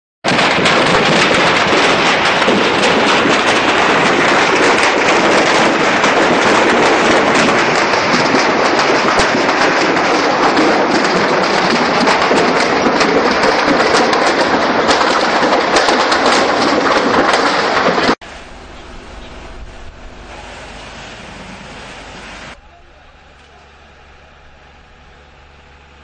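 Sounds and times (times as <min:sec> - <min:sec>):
fire roaring and crackling: 0:00.2 - 0:22.6.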